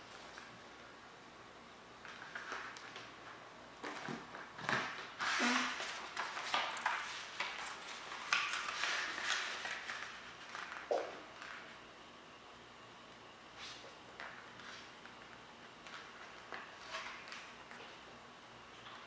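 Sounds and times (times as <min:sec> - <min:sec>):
paper rustling and crinkling: 0:03.8 - 0:11.7, 0:13.7 - 0:17.9.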